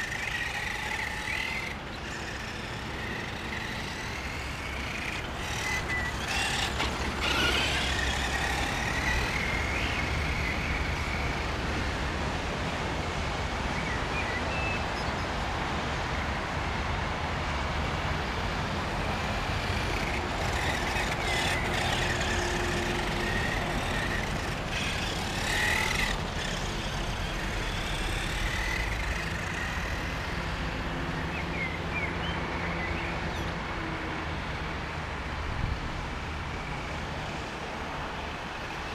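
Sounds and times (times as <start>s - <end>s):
electric motor whining: 0.0s - 12.2s, 18.3s - 31.4s.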